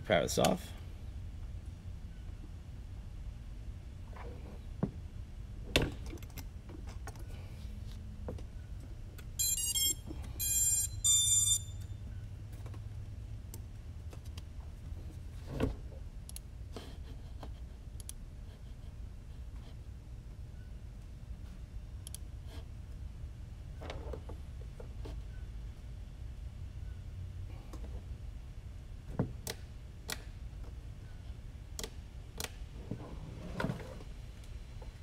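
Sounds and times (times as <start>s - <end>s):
buzzy electronic beeps: 9.4s - 11.8s.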